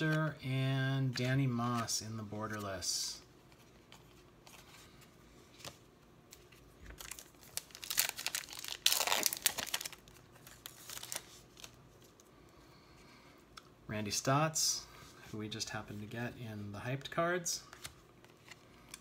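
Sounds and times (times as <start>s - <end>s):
wrapper tearing and crinkling: 6.9s - 11.8s.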